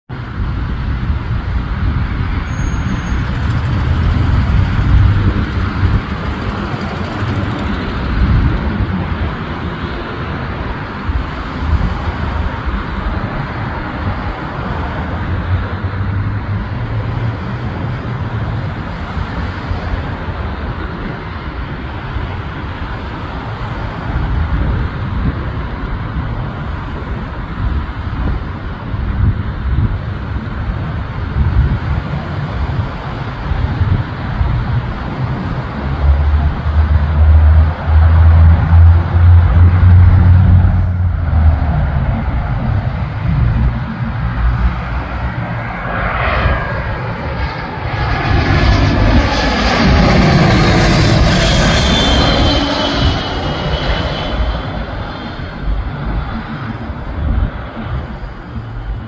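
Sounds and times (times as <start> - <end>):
road traffic noise: 0.1 - 59.0
low rumble: 37.6 - 59.0.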